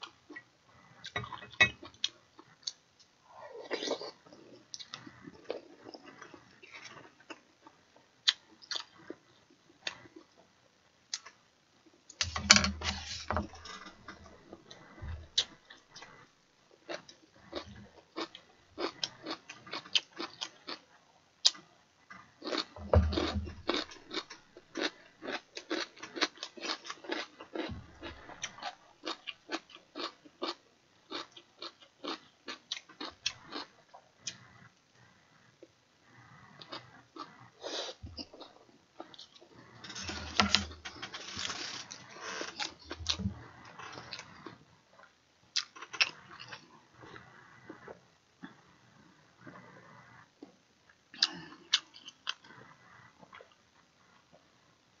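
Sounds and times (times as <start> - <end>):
person chewing food: 3.6 - 7.5, 8.2 - 9.2, 12.2 - 20.8, 22.4 - 34.6, 36.1 - 44.6, 45.5 - 48.6.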